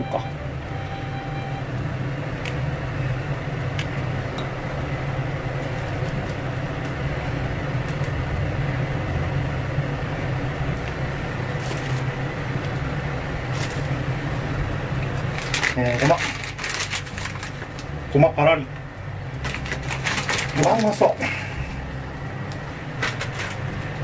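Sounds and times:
low mechanical hum: 0.0s - 24.0s.

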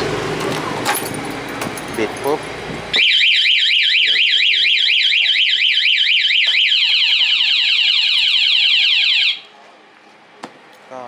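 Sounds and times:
motorcycle alarm siren: 2.9s - 9.5s.

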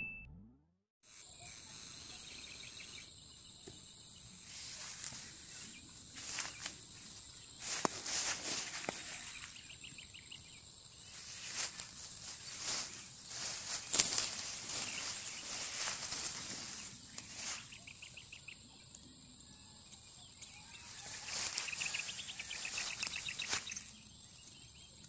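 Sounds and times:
insects chirring: 1.1s - 25.0s
plants rustling and snapping: 7.6s - 9.4s, 11.5s - 17.6s.

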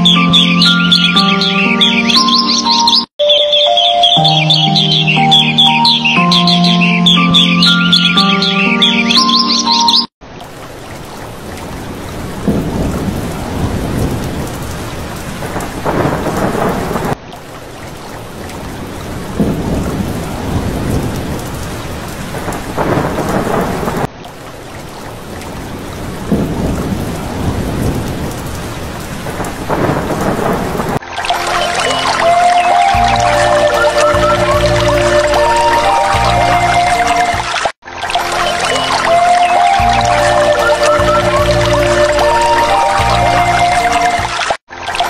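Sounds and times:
steady rain: 10.2s - 45.0s
thunder rumbling: 11.5s - 17.2s, 18.6s - 24.1s, 25.4s - 31.0s.

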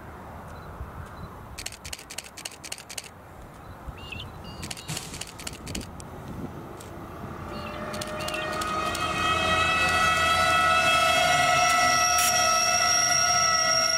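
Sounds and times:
rapid sharp clicks: 1.6s - 3.1s, 4.6s - 6.1s, 7.9s - 9.0s
short high chirps: 7.5s - 9.0s.

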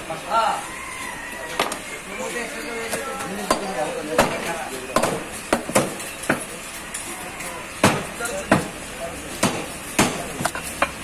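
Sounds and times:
murmur of voices: 0.0s - 11.0s
cleavers chopping meat on wood: 1.6s - 1.8s, 2.8s - 6.5s, 7.8s - 11.0s.

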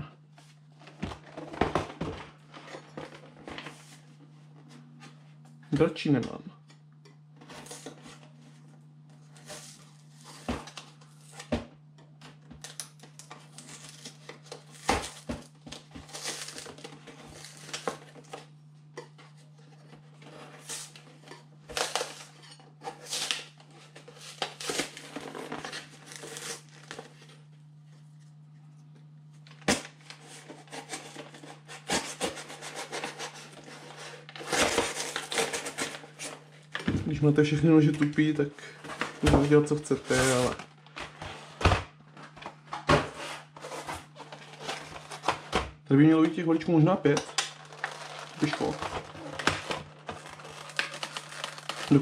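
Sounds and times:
steady low hum: 0.0s - 52.0s
cardboard rustling: 13.4s - 27.4s, 29.6s - 37.1s, 37.9s - 52.0s
knife scraping cardboard box: 30.2s - 36.4s.

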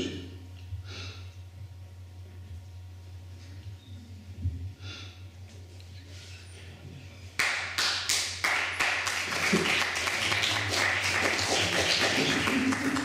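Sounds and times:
audience clapping: 7.4s - 13.0s.

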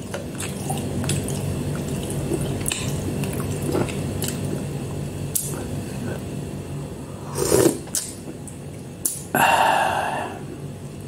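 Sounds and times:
steady low hum: 0.0s - 11.0s
person chewing and slurping noodles: 0.2s - 4.7s, 7.1s - 8.4s.

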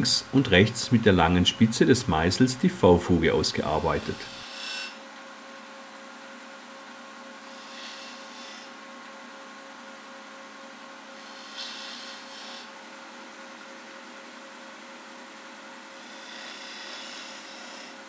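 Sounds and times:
wood lathe humming: 0.0s - 4.9s
chisel cutting hiss: 3.6s - 5.0s, 11.2s - 12.7s, 16.0s - 18.0s.

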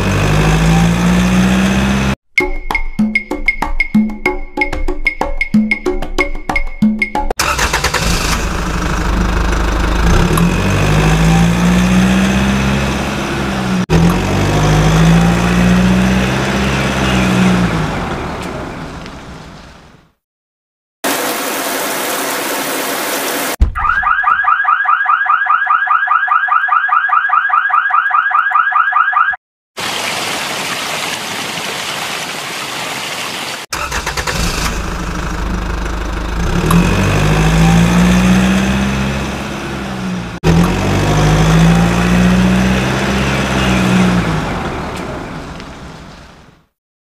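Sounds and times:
engine revving: 0.0s - 2.2s, 7.4s - 18.9s, 33.7s - 45.4s
rapid warbling alarm: 23.8s - 29.4s.

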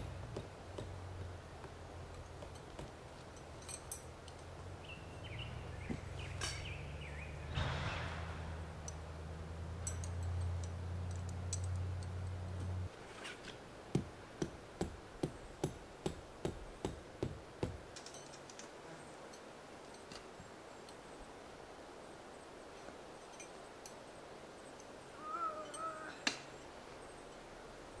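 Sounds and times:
tent stakes hammered into dirt: 0.0s - 3.3s, 12.6s - 18.1s.

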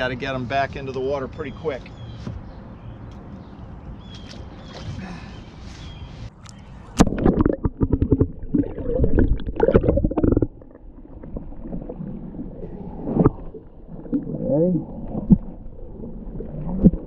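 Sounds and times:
water splashing and gurgling: 6.7s - 17.0s.

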